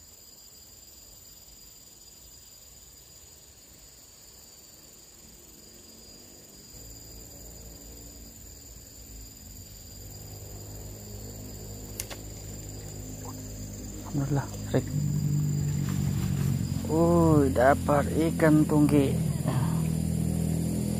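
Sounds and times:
insects trilling: 0.0s - 20.9s
low droning hum: 6.1s - 20.9s
sharp click: 12.0s - 12.4s.

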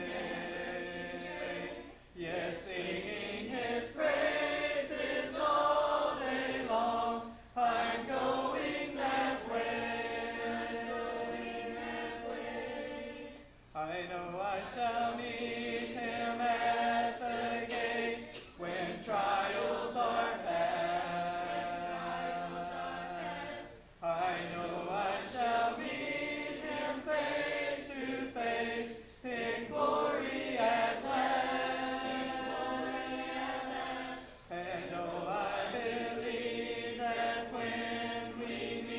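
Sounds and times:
congregation singing a hymn: 0.0s - 38.9s.

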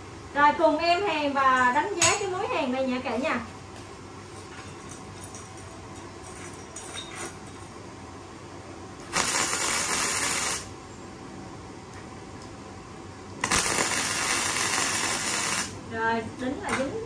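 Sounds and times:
welding arc crackling and hissing: 9.0s - 10.8s, 13.4s - 15.9s.

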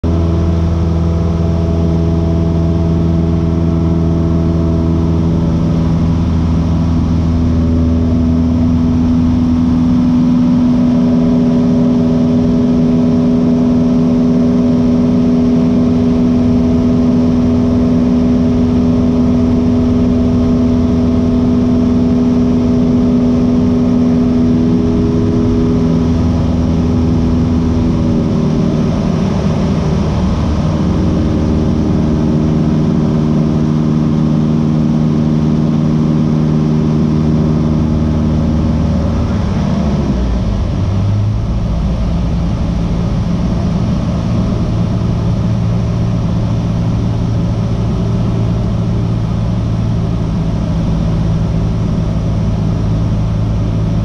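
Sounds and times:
aircraft piston engine and propeller: 0.0s - 54.0s.

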